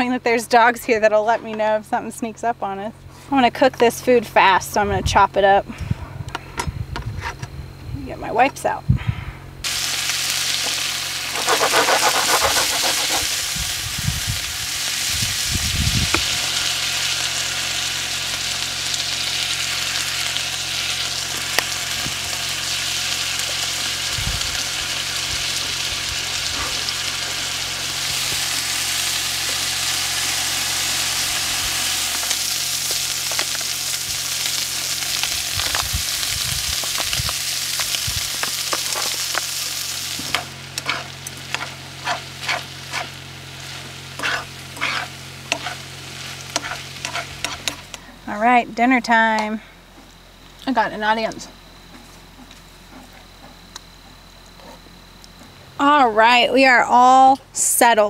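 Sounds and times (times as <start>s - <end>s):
low even hum: 0.0s - 58.0s
chicken sizzling in a pan: 9.6s - 48.0s
utensil clicking and scraping: 11.3s - 13.3s.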